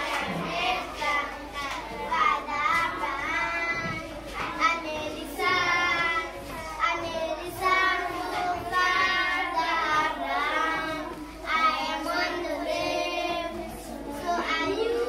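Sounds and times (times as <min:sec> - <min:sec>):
children singing together: 0:00.0 - 0:15.0.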